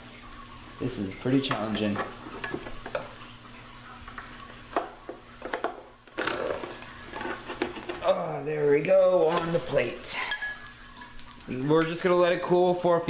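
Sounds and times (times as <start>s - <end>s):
spatula scraping waffle maker plates: 6.2s - 8.2s.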